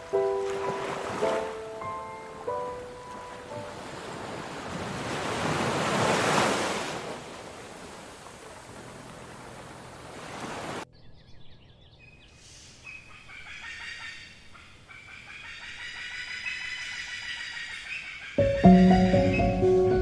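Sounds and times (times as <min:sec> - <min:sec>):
surf: 0:00.0 - 0:10.8
wind: 0:00.0 - 0:20.0
birds chirping: 0:00.1 - 0:04.5, 0:10.9 - 0:20.0.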